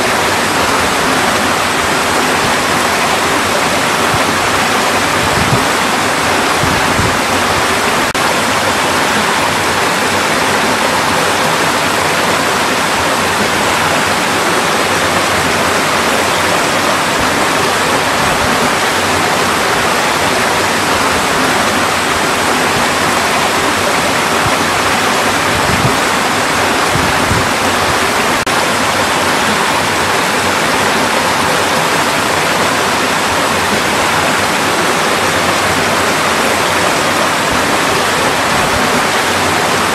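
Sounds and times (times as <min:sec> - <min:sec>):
stream rushing over rocks: 0:00.0 - 0:39.9.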